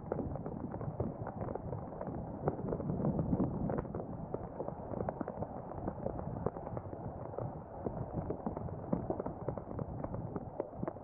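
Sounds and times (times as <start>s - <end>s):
rain drops pattering: 0.0s - 11.0s.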